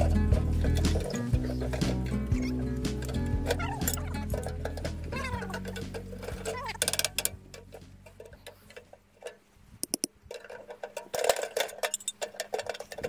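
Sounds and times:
metal clicks and clinks: 0:02.8 - 0:13.0.

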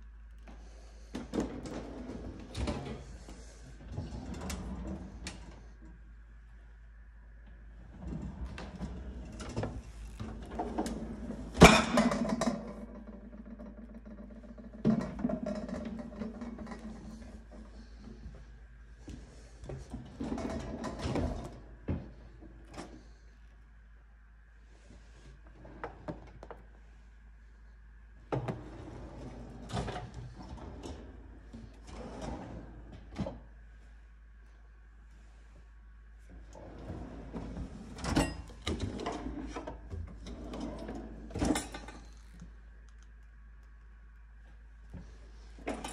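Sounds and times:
drawers running on slides: 0:01.1 - 0:05.6, 0:07.8 - 0:17.8, 0:19.8 - 0:21.6, 0:28.3 - 0:33.4, 0:36.4 - 0:42.1.

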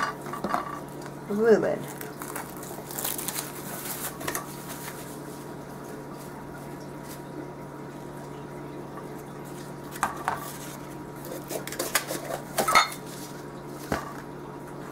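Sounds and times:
plastic bag crinkling: 0:00.8 - 0:07.4.

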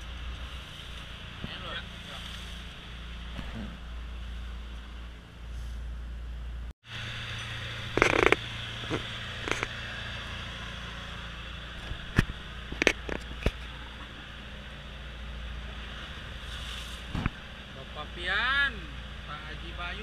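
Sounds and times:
motor boat engine running: 0:00.0 - 0:20.0
sharp knocks and clatters: 0:08.0 - 0:09.7.

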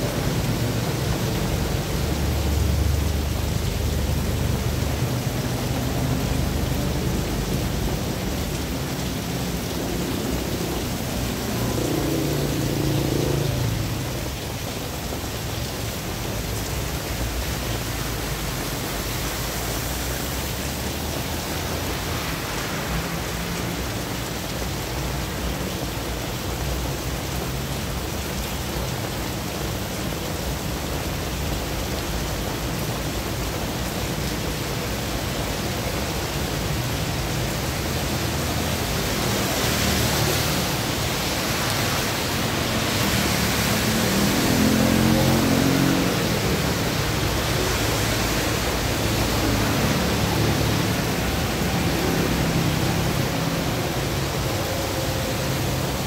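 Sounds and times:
heavy rain on road: 0:00.0 - 0:56.0
tyres hissing on wet road: 0:00.0 - 0:56.0
vehicle engine hum: 0:36.1 - 0:56.0.

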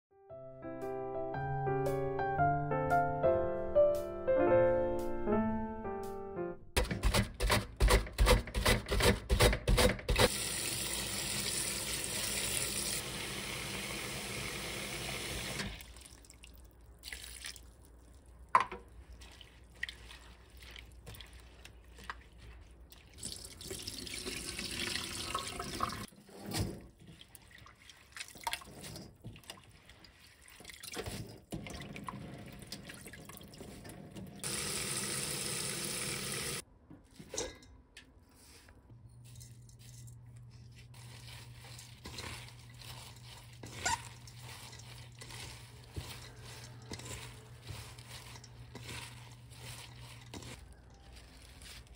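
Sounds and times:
hands swishing in water: 0:19.0 - 0:23.2
tap water running into steel bowl: 0:23.1 - 0:26.1.

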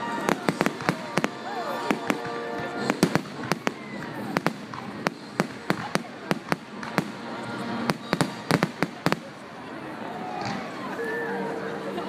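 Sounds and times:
fireworks bursting with sharp bangs: 0:00.0 - 0:09.5.

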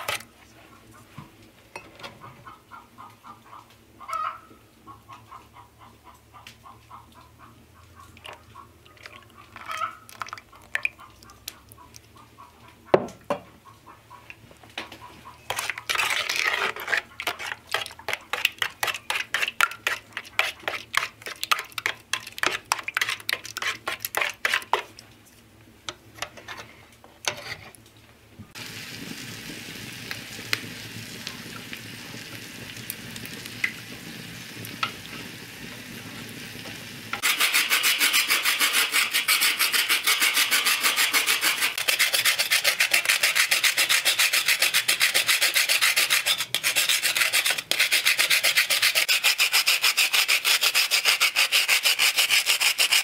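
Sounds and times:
whisk scraping metal pail: 0:00.0 - 0:00.3, 0:14.8 - 0:25.0, 0:26.2 - 0:27.8, 0:37.2 - 0:53.0
steady hiss with crackles: 0:27.7 - 0:37.2
hand grater rasping: 0:37.2 - 0:53.0.

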